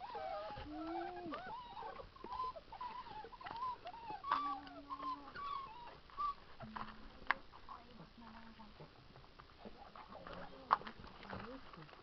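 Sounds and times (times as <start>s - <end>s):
puppies whining and whimpering: 0.0s - 7.0s.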